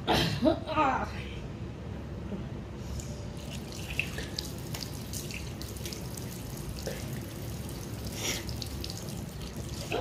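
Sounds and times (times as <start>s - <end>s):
water splashing on face: 3.4s - 10.0s.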